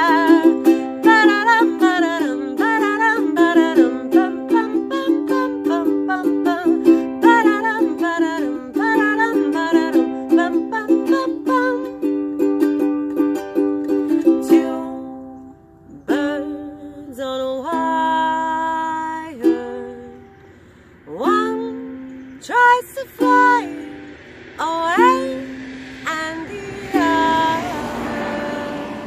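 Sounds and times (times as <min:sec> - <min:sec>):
woman singing: 0:00.0 - 0:12.5, 0:14.0 - 0:20.5, 0:21.1 - 0:29.0
ukulele strumming: 0:00.0 - 0:29.0
voice holding long note: 0:21.0 - 0:29.0.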